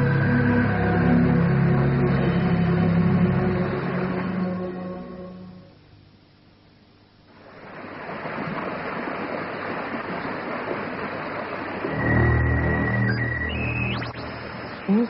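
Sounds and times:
steady high tone: 0:00.0 - 0:05.8, 0:11.9 - 0:15.0
low hum: 0:00.0 - 0:09.0, 0:09.6 - 0:15.0.

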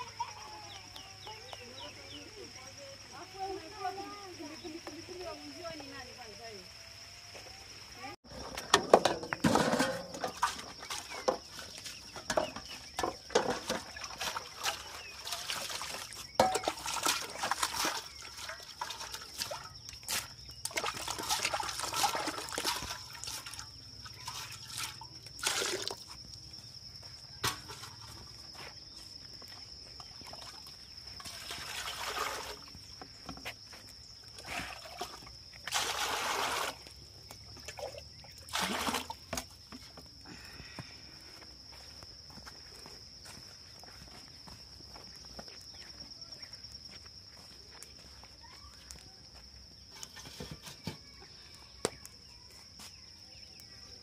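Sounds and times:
water trickling and sloshing: 0:08.2 - 0:40.2.

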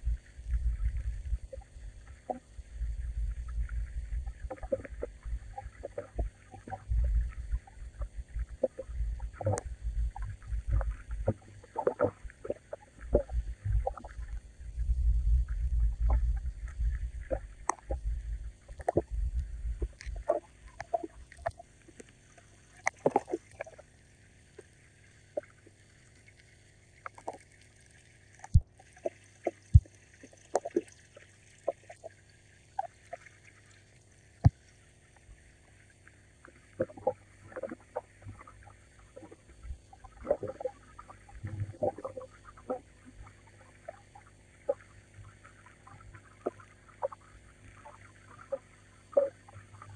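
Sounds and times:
water moving: 0:00.0 - 0:49.9
low rumble: 0:13.3 - 0:20.3
small knocks pops and splashes: 0:22.8 - 0:23.8.

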